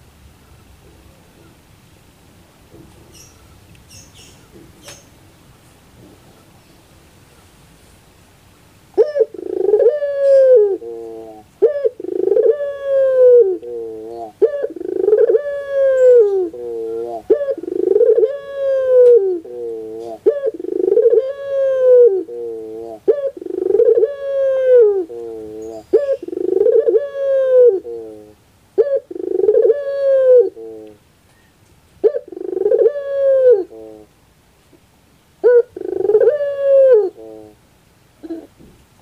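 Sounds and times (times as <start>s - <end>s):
dove cooing: 8.9s - 31.0s, 32.0s - 34.1s, 35.4s - 37.6s, 38.2s - 38.7s.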